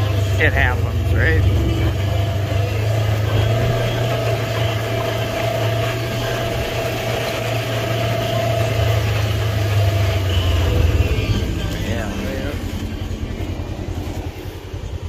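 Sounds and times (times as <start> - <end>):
vehicle engine droning: 0.0 - 15.0.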